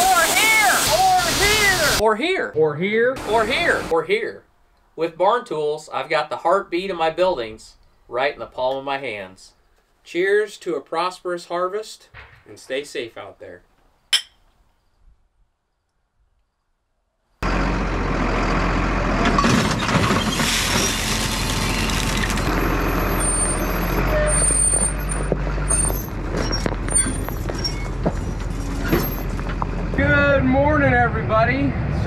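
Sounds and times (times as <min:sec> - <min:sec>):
tractor engine running: 0:17.4 - 0:30.7.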